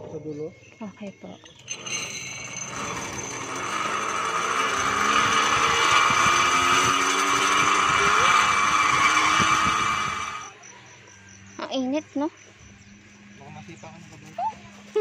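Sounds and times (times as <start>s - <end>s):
zip line pulley whirring: 1.5s - 10.7s, 14.2s - 15.0s.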